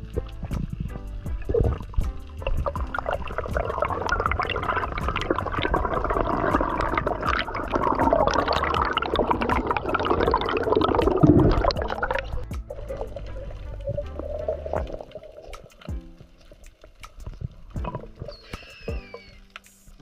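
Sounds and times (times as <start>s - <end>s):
burst of bubbles rushing: 0.0s - 15.8s
underwater bubbling and gurgling: 0.0s - 19.6s.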